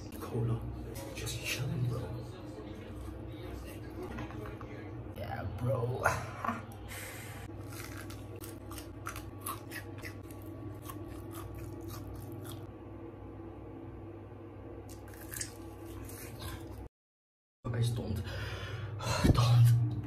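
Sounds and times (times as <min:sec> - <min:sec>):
crunching fried chicken: 0:07.5 - 0:12.7.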